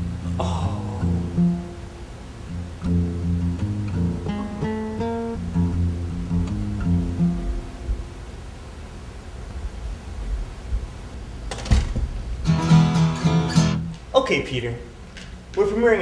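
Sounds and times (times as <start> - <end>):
low bass notes: 0.0 - 8.2
plucked guitar tune: 0.0 - 8.2, 12.4 - 14.0.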